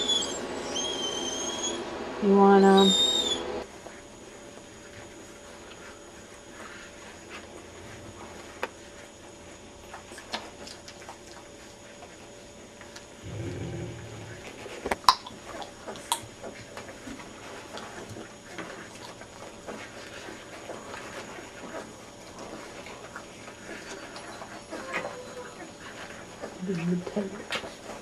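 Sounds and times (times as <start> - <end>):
puppies squeaking: 0.0 - 1.9, 2.5 - 3.6, 23.7 - 25.9
puppies suckling clicks: 9.8 - 13.1, 14.8 - 28.0
brief low rumble: 13.2 - 14.7.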